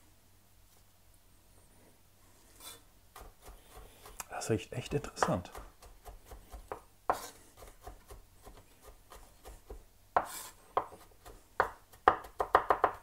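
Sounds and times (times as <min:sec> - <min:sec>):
knife chopping on cutting board: 0:03.2 - 0:04.2, 0:04.8 - 0:13.0.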